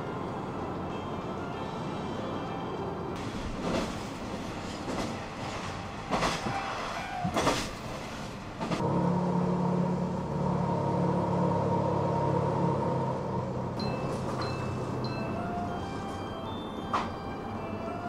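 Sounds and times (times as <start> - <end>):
wheels rumbling on rail: 0.0 - 18.0
low engine hum with whine: 8.8 - 14.8.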